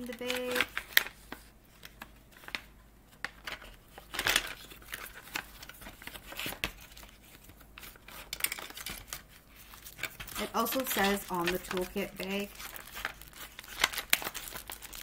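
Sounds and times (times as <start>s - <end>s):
plastic pouch crinkling: 3.3s - 15.0s.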